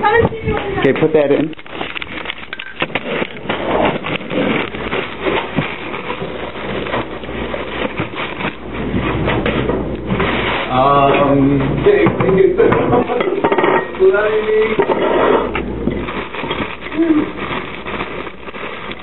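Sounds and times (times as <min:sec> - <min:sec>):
plastic food bag rustling: 0:00.0 - 0:19.0
scrapes on tabletop: 0:14.8 - 0:15.6.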